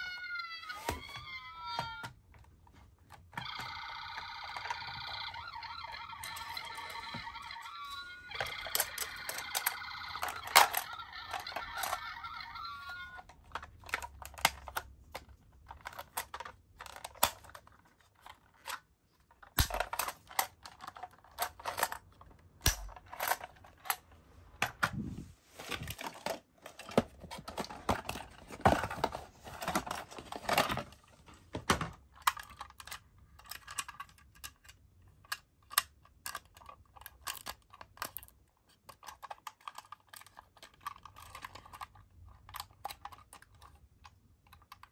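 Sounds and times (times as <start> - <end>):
electronic toy siren: 0.0 - 2.1, 3.4 - 13.3
plastic toys clicking and rattling: 0.0 - 24.9, 25.7 - 44.9.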